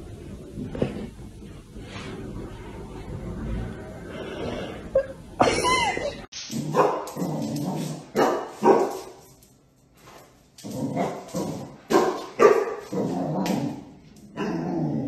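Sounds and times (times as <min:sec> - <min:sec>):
puppy barking: 0:06.7 - 0:07.1, 0:08.2 - 0:09.0, 0:11.9 - 0:12.9.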